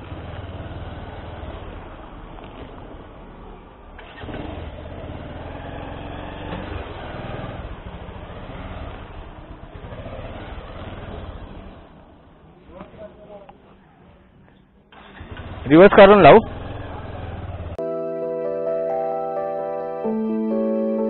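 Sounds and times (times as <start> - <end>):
motorcycle engine at low revs: 0.0 - 12.2, 15.0 - 17.8.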